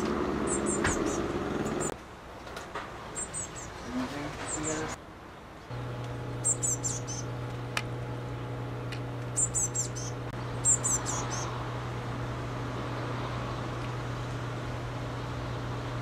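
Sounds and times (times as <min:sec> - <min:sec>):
steady low hum: 0:05.7 - 0:16.0
bird fledgling high thin calls: 0:06.4 - 0:07.3, 0:09.4 - 0:11.5.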